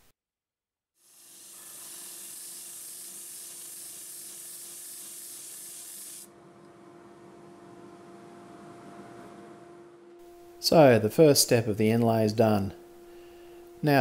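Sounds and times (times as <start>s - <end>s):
wood sanding hiss: 1.0s - 6.3s.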